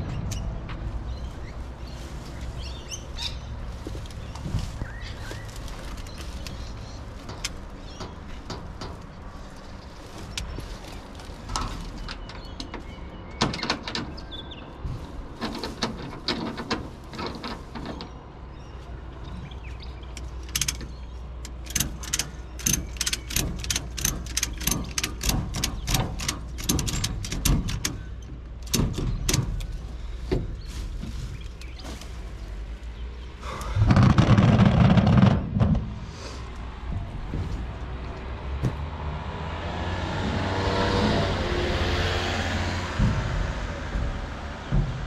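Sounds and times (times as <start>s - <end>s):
branches crackling and snapping: 0.0s - 45.0s
loud rumbling burst: 33.4s - 37.3s.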